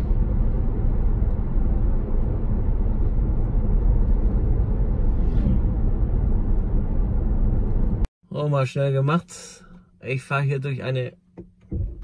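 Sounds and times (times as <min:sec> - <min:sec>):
tyre and road noise rumble: 0:00.0 - 0:08.1.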